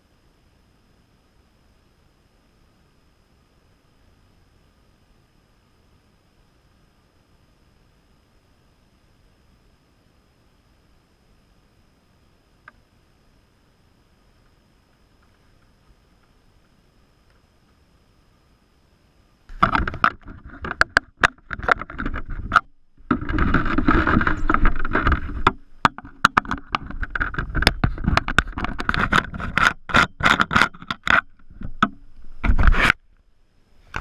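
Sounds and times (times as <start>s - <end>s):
rubbing and scraping against hull: 19.5s - 33.0s
sharp clicks and knocks: 19.5s - 33.0s.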